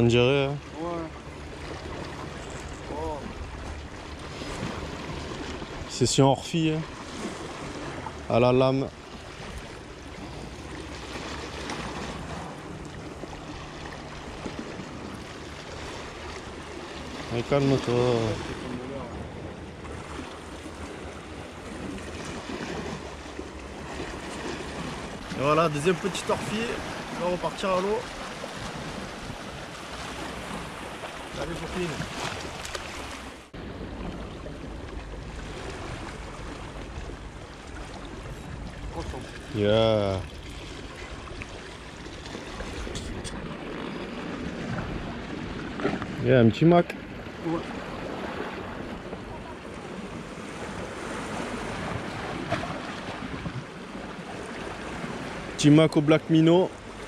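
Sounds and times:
sea waves splashing against rocks: 0:00.0 - 0:55.8
sea water washing on rocks: 0:21.6 - 0:46.3.

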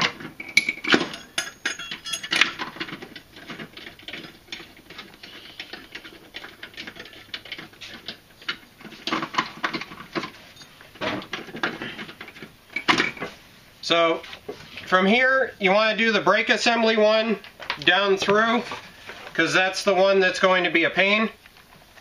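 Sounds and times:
metal bolts clicking and rattling: 0:00.0 - 0:13.3.

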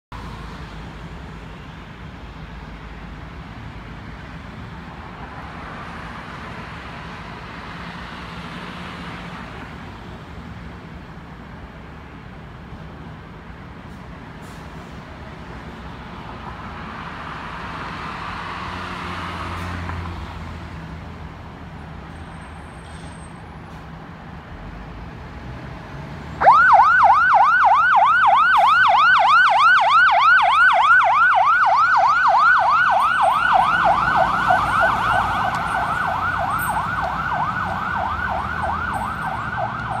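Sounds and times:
road traffic noise: 0:00.1 - 0:40.0
fire engine siren yelping: 0:26.4 - 0:40.0.

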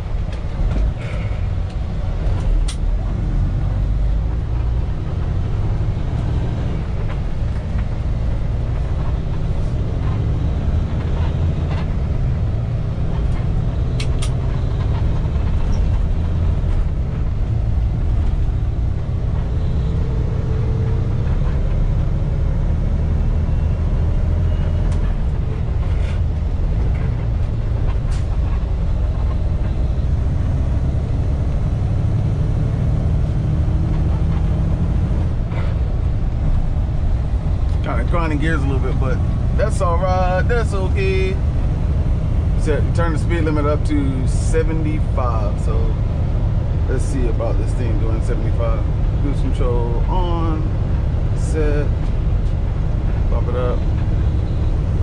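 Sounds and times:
truck engine and road drone: 0:00.0 - 0:55.0.

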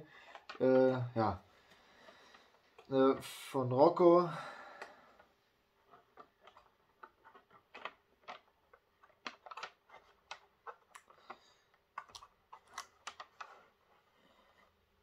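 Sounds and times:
cardboard boxes clicking and crinkling: 0:05.8 - 0:13.8.

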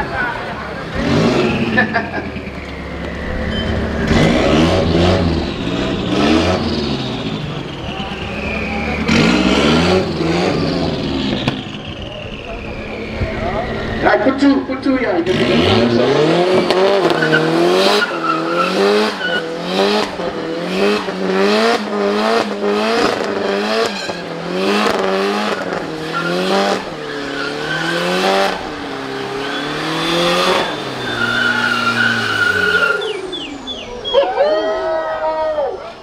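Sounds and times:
car engine revving: 0:00.0 - 0:34.4
tyres squealing: 0:17.0 - 0:19.6, 0:25.4 - 0:36.0.

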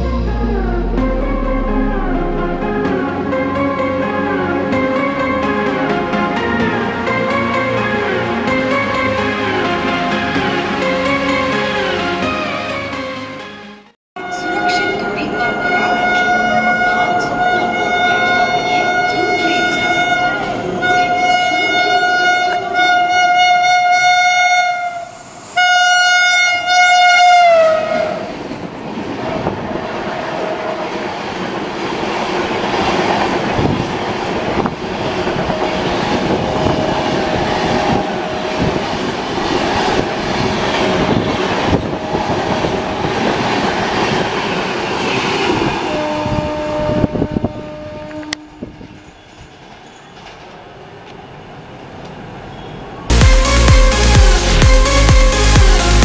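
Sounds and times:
locomotive horn blasts: 0:14.2 - 0:28.2, 0:45.9 - 0:49.0.

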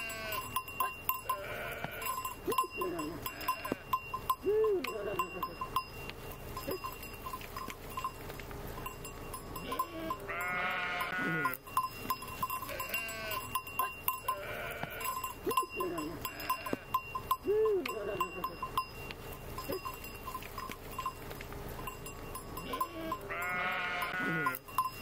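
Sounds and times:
sheep bleating: 0:00.0 - 0:05.6, 0:09.6 - 0:11.6, 0:12.5 - 0:18.7, 0:22.6 - 0:24.6
small bell clinking: 0:00.0 - 0:25.0.

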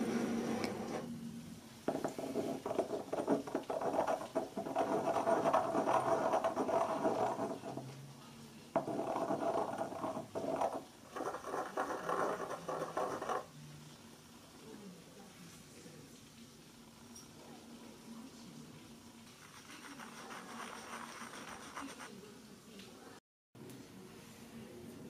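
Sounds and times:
ink stick grinding on ceramic: 0:02.0 - 0:07.9, 0:08.8 - 0:13.5, 0:19.4 - 0:22.2.

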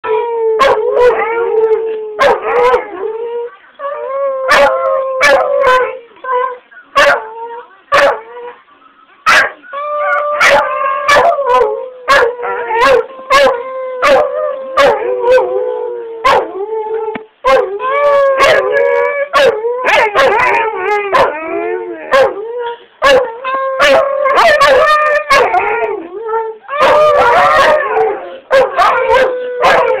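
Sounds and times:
husky howling with yips: 0:09.3 - 0:16.6, 0:17.5 - 0:26.1, 0:26.7 - 0:30.0.

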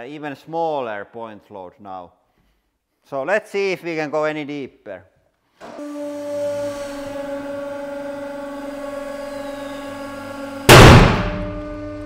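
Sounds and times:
hydraulic press humming: 0:05.6 - 0:12.0
loud bang of steel breaking: 0:10.7 - 0:11.7.

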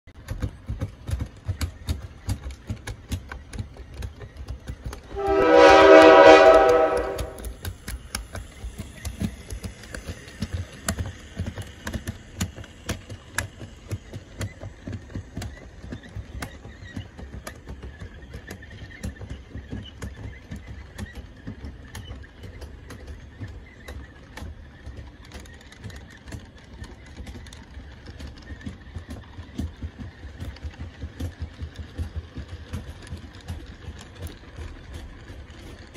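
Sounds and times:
model train wheels clicking: 0:00.1 - 0:35.9
train horn: 0:05.0 - 0:07.6.

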